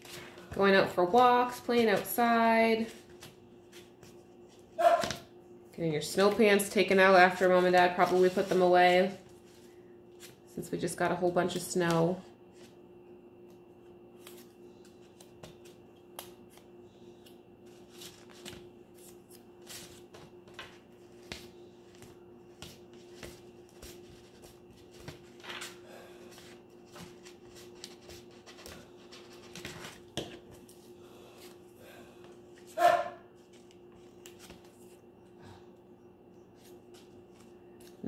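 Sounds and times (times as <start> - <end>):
low steady hum: 0.0 - 38.0
paper taps and rustles: 22.0 - 25.7.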